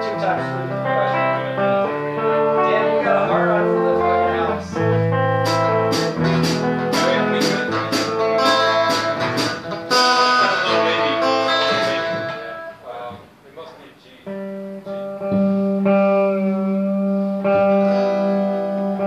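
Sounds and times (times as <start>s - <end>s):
guitars playing sustained chords: 0.0s - 13.2s, 14.2s - 19.0s
sharp percussion hits: 5.4s - 12.5s.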